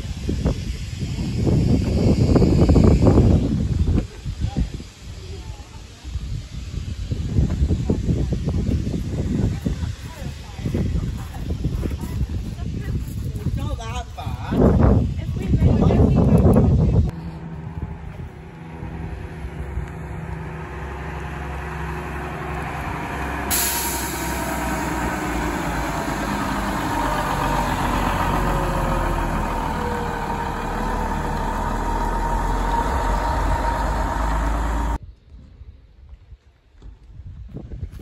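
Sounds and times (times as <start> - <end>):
diesel coach engine running: 16.1 - 35.0.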